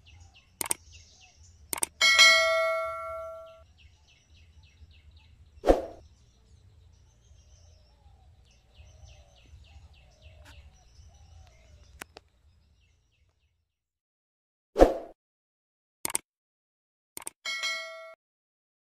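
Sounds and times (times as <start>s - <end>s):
bird calling falling high notes: 2.0s - 3.6s.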